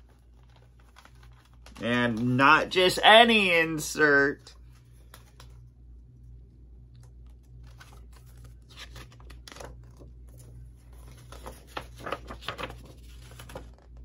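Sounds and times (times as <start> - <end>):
paper and plastic rustling: 0.0 - 2.4, 7.3 - 14.0.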